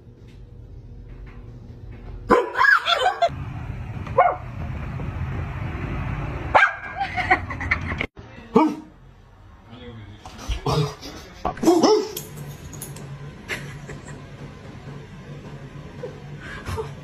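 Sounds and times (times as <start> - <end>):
dog barking and yipping: 2.3 - 3.2, 4.2 - 4.4, 6.5 - 7.0.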